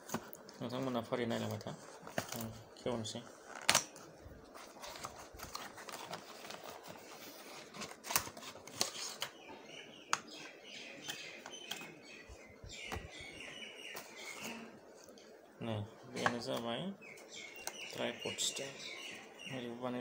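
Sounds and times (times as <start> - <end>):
packaging rustling and clicking: 3.5 - 9.4
birds chirping: 8.8 - 20.0.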